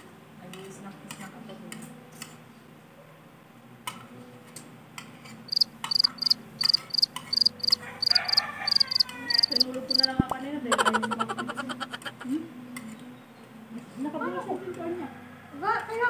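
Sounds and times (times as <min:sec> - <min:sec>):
cricket chirping: 0:05.5 - 0:10.2.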